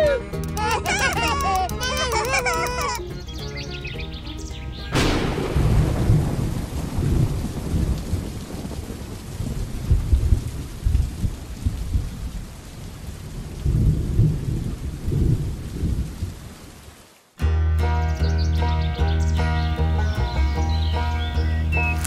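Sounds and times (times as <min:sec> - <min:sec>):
steady rain hiss: 0:00.0 - 0:17.4
low rolls of thunder: 0:04.9 - 0:16.7.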